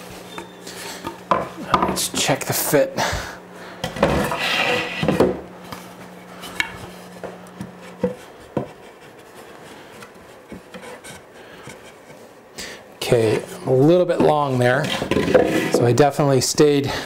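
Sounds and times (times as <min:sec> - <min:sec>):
wooden board scraping: 0:04.0 - 0:05.4, 0:07.6 - 0:12.3, 0:14.2 - 0:15.9.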